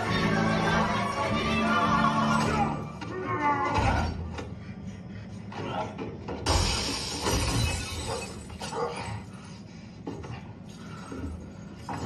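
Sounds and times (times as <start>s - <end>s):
glass shattering: 6.5s - 8.7s.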